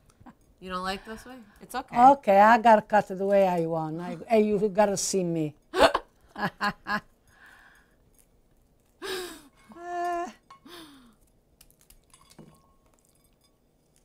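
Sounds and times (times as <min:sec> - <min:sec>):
person laughing: 0:05.8 - 0:07.0
person humming: 0:09.0 - 0:11.0.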